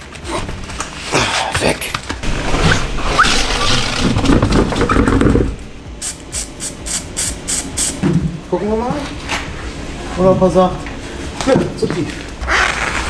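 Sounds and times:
wheel and tyre handling noise: 0:00.0 - 0:06.1
spray paint can hissing: 0:06.0 - 0:08.0.

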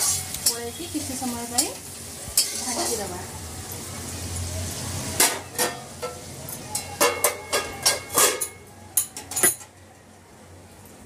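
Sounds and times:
vegetables sizzling in oil: 0:00.0 - 0:08.7.

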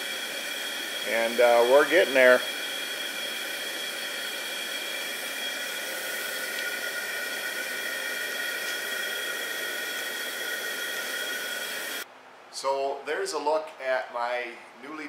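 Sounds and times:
high whistle-like tones: 0:00.0 - 0:12.0
gas burner hissing: 0:00.0 - 0:12.1.

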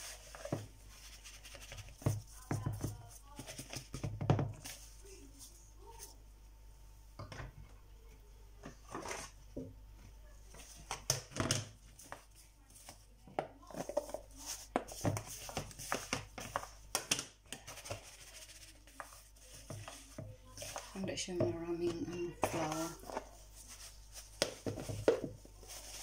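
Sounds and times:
meat tossed in flour rustling: 0:00.0 - 0:06.1, 0:17.6 - 0:26.0
plastic bowl taps and clacks: 0:13.4 - 0:18.0.

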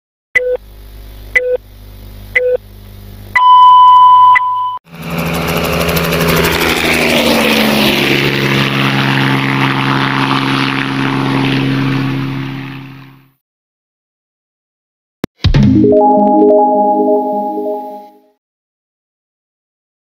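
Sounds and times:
long loud beep: 0:03.4 - 0:04.8
short beeps: 0:03.4 - 0:04.8.

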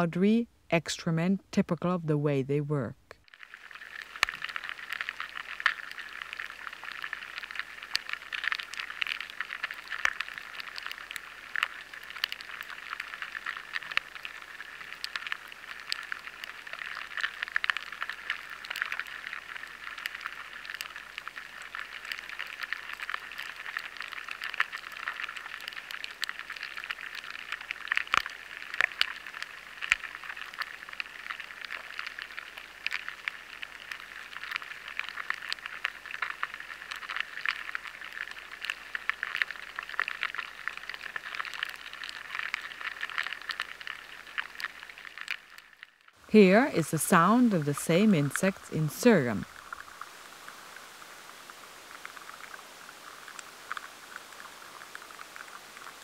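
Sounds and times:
crackle of tiny clicks: 0:03.1 - 0:46.3, 0:49.4 - 0:56.0
steady hiss: 0:46.2 - 0:56.0.

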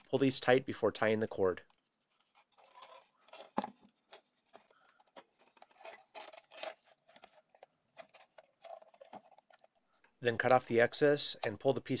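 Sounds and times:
elastic cord rubbing: 0:01.7 - 0:09.6.

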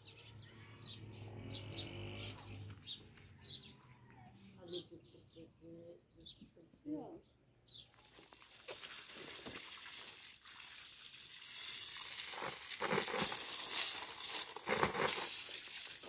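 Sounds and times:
hose spraying water on wall: 0:08.2 - 0:16.0.

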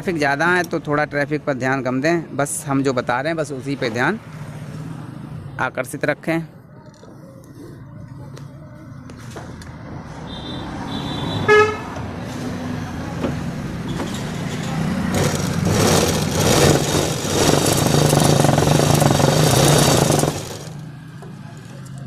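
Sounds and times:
vehicle horn tooting: 0:10.2 - 0:11.9
sewing machine clattering: 0:14.1 - 0:20.8.

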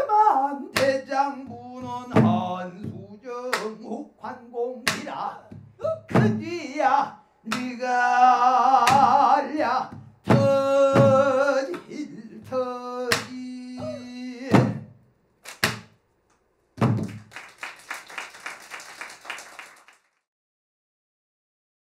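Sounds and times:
man singing in strained voice: 0:00.0 - 0:15.0
people clapping: 0:15.4 - 0:15.9, 0:16.8 - 0:20.3.

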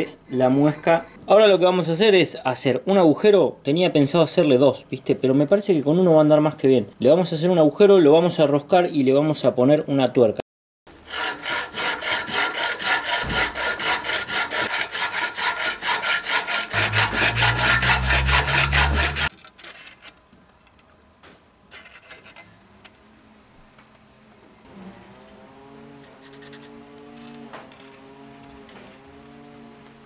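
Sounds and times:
hand tool rasping on metal: 0:11.1 - 0:19.3
low hum: 0:16.8 - 0:19.3.

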